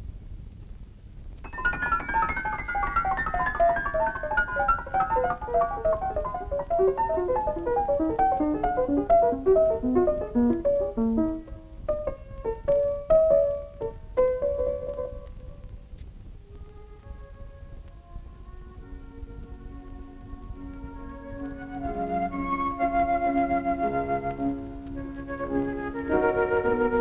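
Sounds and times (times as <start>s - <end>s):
descending piano cascade: 1.5s - 15.6s.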